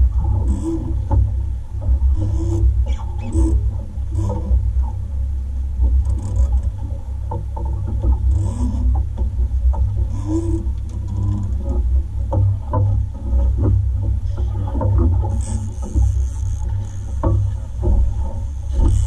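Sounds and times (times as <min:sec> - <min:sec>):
boat engine low rumble: 0:00.0 - 0:19.0
knocks and thumps on boat: 0:00.0 - 0:19.0.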